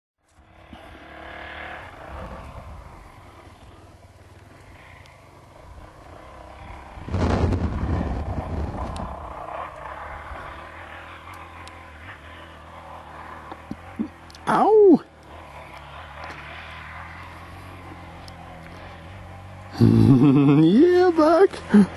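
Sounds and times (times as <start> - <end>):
distant dirt bike revving: 0.2 - 21.9
wind rushing on microphone: 2.0 - 3.0, 6.6 - 10.8.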